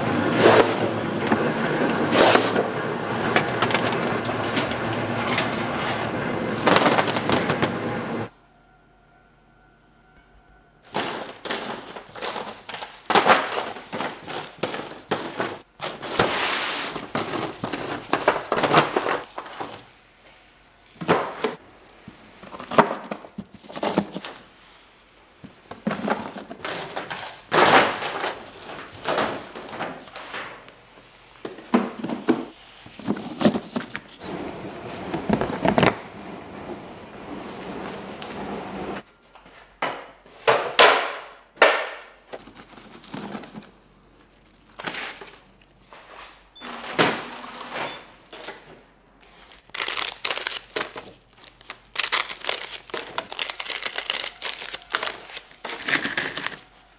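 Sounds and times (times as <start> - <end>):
objects knocking and clattering: 10.9 - 16.3, 31.4 - 34.1.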